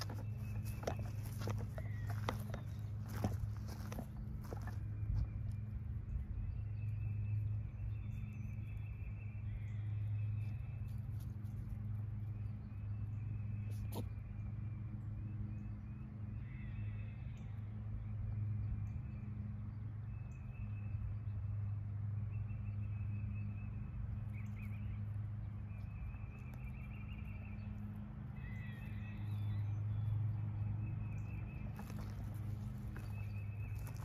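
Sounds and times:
bird chirps: 0:00.0 - 0:11.0, 0:22.3 - 0:34.0
steady low hum: 0:00.0 - 0:34.0.

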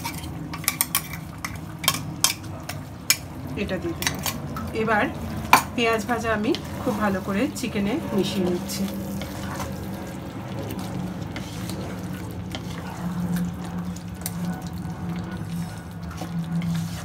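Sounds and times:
steady low hum: 0:00.0 - 0:17.0
spatula stirring thick sauce: 0:06.2 - 0:17.0.

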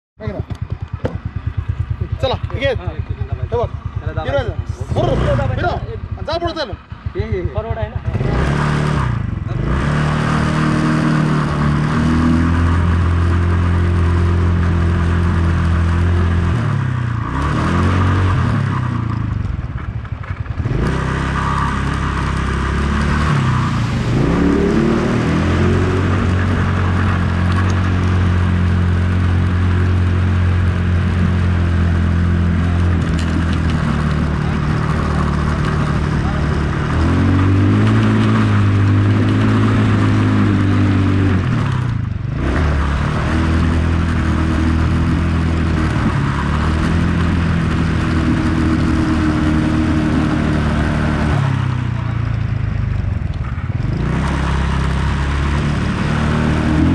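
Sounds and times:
quad bike engine running: 0:00.2 - 0:56.9.

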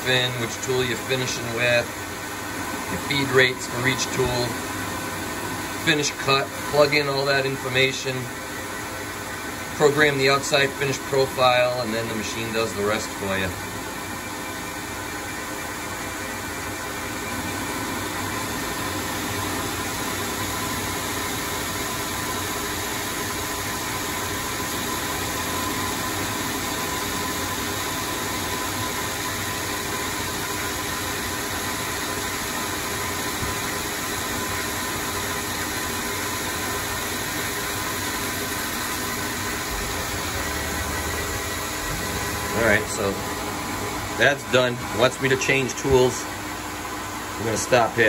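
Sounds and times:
lathe cutting metal: 0:16.6 - 0:48.0.

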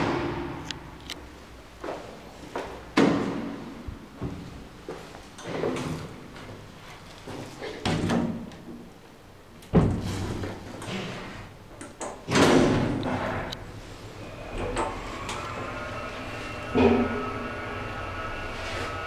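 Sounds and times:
lift motor whine: 0:13.5 - 0:19.0
lift door sliding shut: 0:14.4 - 0:19.0.

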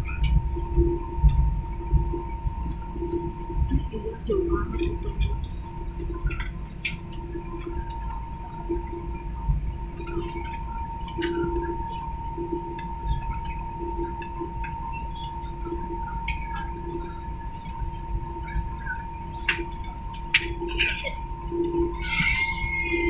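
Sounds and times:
jet engines idling rumble: 0:00.0 - 0:23.0
low hum: 0:00.0 - 0:23.0
small clicks and rattles: 0:04.6 - 0:09.0.

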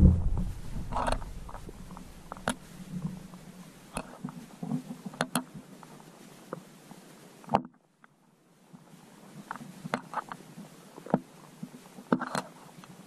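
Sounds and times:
low underwater rumble: 0:00.0 - 0:03.4
muffled underwater clicks and knocks: 0:00.0 - 0:05.6, 0:07.5 - 0:08.2, 0:09.5 - 0:10.4, 0:11.0 - 0:12.6.

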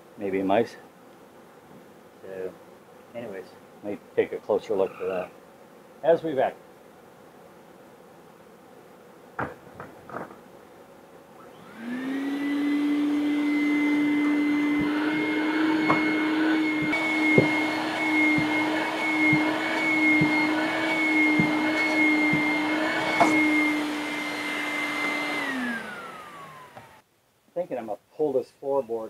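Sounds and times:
knocks: 0:09.4 - 0:10.4, 0:15.8 - 0:20.6, 0:21.2 - 0:23.6
shop vacuum running: 0:11.4 - 0:27.0.

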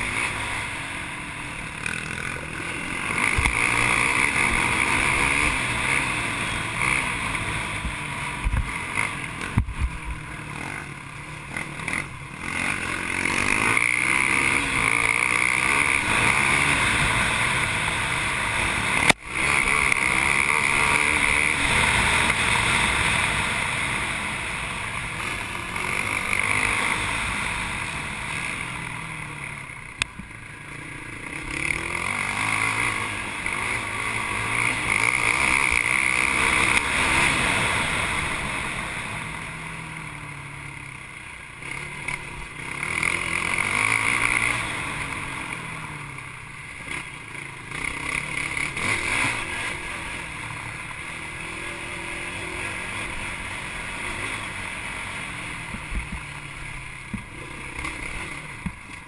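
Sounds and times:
atv engine revving: 0:00.0 - 0:59.0
wind and dirt noise: 0:00.0 - 0:59.0.

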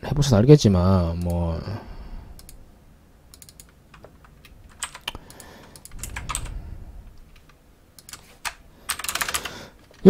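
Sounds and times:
mouse clicks: 0:02.4 - 0:02.6, 0:03.3 - 0:04.1
keyboard keystrokes: 0:03.3 - 0:06.5, 0:07.3 - 0:09.5.

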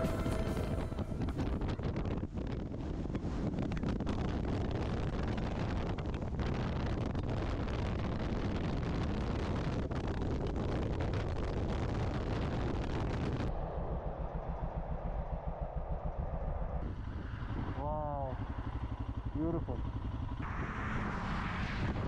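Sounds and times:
motorcycle engine drone: 0:00.0 - 0:22.0
wind rushing over microphone: 0:00.0 - 0:22.0.

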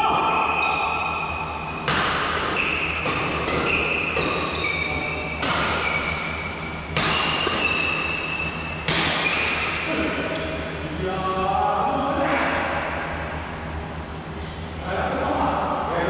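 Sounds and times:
shoes squeaking on court floor: 0:00.2 - 0:01.8, 0:02.4 - 0:09.7
racquets hitting shuttlecock: 0:01.7 - 0:10.5.

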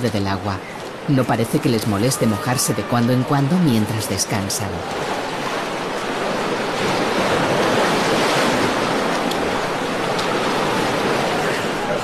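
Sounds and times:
waves breaking on rocks: 0:00.0 - 0:12.0.

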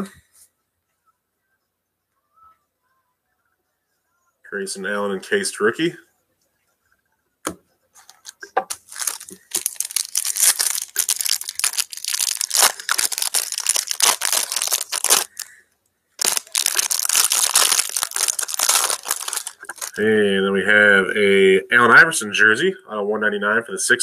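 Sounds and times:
wrapper tearing and crinkling: 0:08.0 - 0:15.5, 0:16.2 - 0:20.0.

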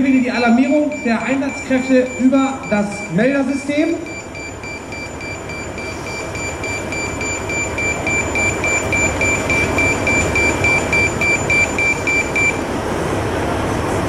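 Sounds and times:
pager alert beeping: 0:00.5 - 0:03.2, 0:04.0 - 0:12.6.

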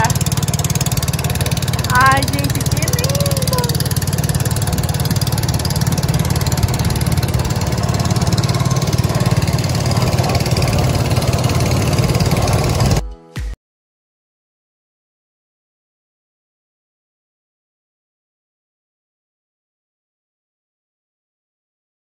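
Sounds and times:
outboard motor running: 0:00.0 - 0:13.0
water rushing past hull: 0:02.6 - 0:13.0.

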